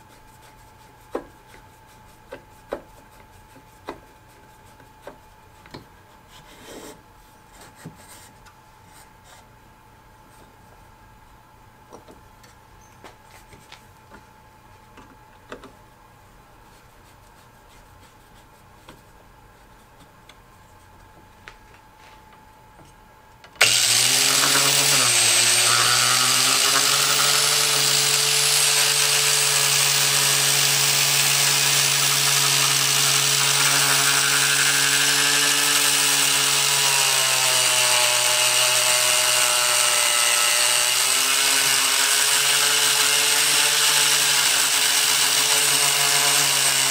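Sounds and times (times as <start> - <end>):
angle grinder cutting steel: 23.6 - 46.9.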